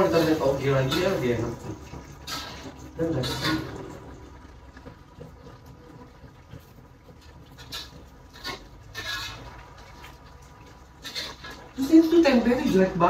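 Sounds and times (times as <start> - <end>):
spatula scraping a pan: 0.0 - 1.6, 2.2 - 4.0, 7.6 - 10.0, 10.9 - 11.8.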